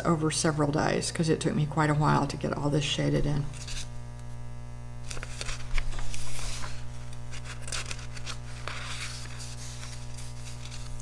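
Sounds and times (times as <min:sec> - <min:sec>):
paper rustling and scraping: 0:03.5 - 0:03.9, 0:05.0 - 0:11.0.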